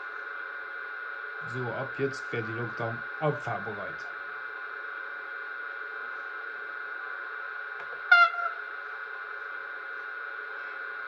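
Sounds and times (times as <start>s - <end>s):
electrical hum with high tone: 0.0s - 11.0s
locomotive horn blast: 8.1s - 8.6s.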